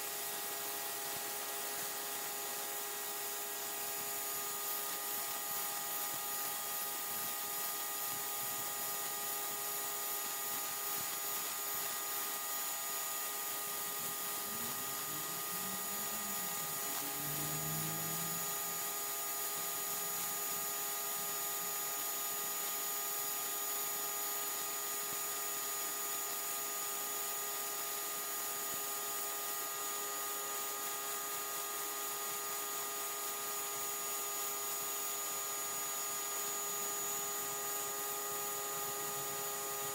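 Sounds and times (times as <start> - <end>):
pressure washer motor whine: 0.0 - 25.3, 32.5 - 39.9
high-pressure water jet hissing: 0.0 - 27.0, 34.8 - 39.9.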